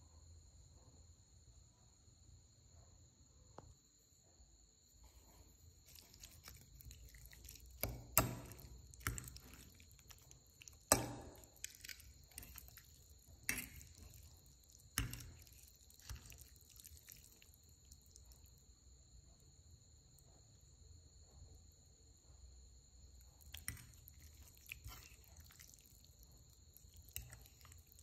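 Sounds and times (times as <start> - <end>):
wet squishing of noodles: 5.0 - 18.8, 23.2 - 28.0.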